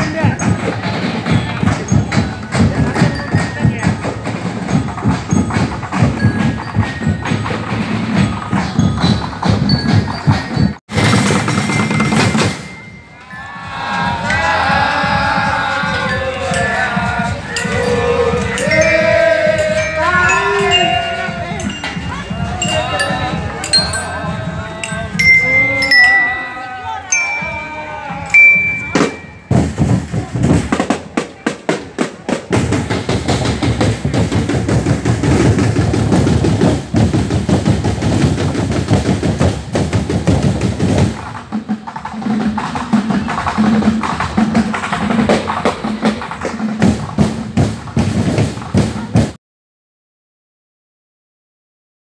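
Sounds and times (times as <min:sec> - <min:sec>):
marching snare drums: 0:00.0 - 0:12.9, 0:14.4 - 0:49.4
bell-lyre notes: 0:11.5 - 0:15.1, 0:15.9 - 0:30.0
voices: 0:11.7 - 0:36.2
low pulsing drum beat: 0:14.9 - 0:41.8.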